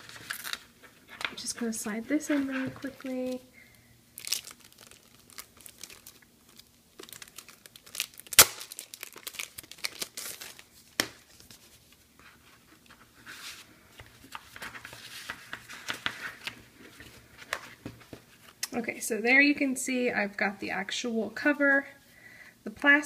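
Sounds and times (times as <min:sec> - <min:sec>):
plastic and paper rustling: 0:00.0 - 0:03.4, 0:04.2 - 0:18.6.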